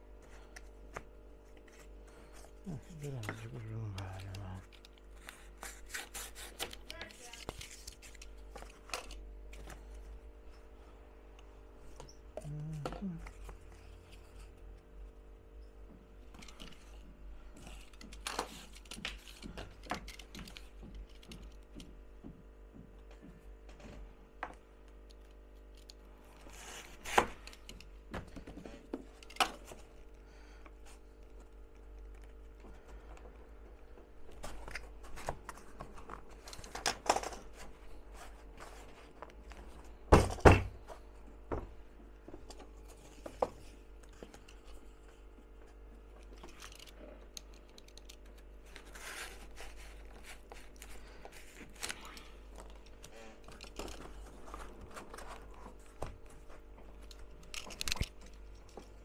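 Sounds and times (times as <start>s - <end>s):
faint steady hum: 0.0s - 59.0s
cardboard rustling: 48.0s - 57.0s.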